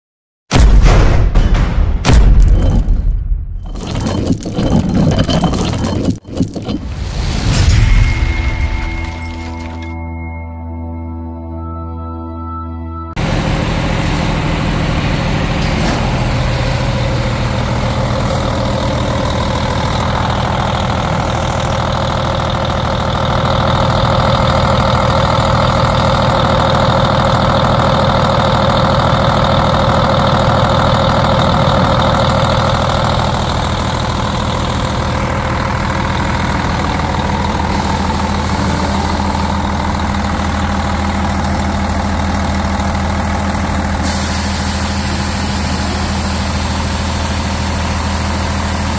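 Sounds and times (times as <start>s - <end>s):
diesel engine idling: 13.2s - 48.9s.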